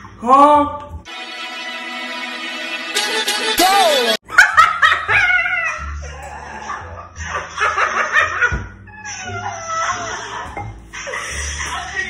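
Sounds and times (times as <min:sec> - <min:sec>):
music playing: 0:00.8 - 0:05.0
girl laughing: 0:04.3 - 0:06.8.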